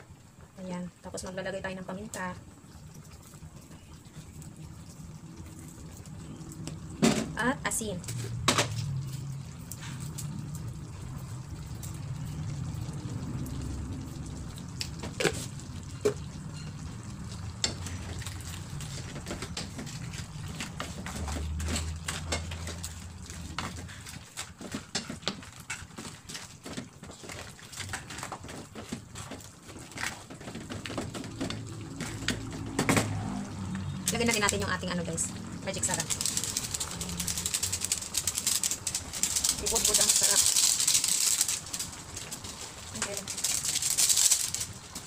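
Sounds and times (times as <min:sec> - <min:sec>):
wooden spatula scraping a pan: 0:17.6 - 0:32.8.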